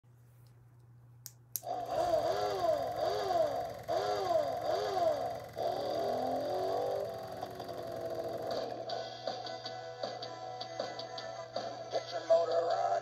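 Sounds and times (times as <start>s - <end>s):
toy motorcycle engine sound effect: 1.6s - 9.0s.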